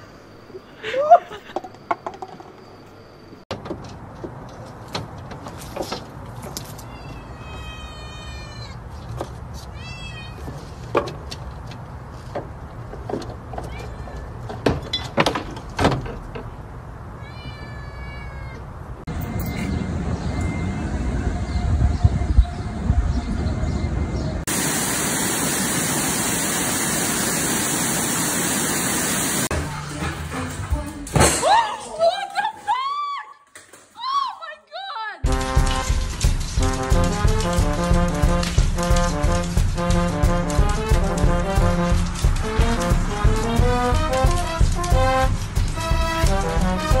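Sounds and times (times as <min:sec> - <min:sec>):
cat meowing: 0:06.8 - 0:08.8, 0:17.2 - 0:18.6
water rushing over weir: 0:24.5 - 0:29.5.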